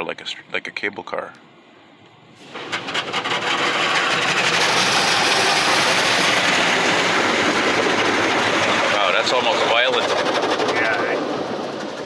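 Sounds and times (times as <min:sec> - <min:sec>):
water jets spraying on car: 0:02.4 - 0:12.0.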